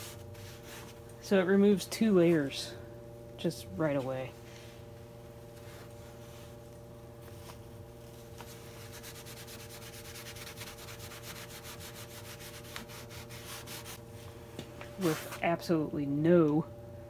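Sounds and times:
paper towel scrubbing paint: 0.0 - 1.0, 8.4 - 14.0
low electrical hum: 0.0 - 17.0.

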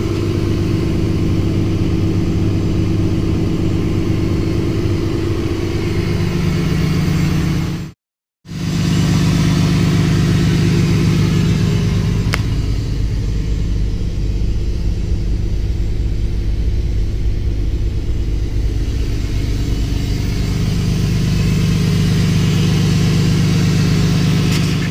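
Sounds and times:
diesel engine idling: 0.0 - 7.9, 8.5 - 24.9.

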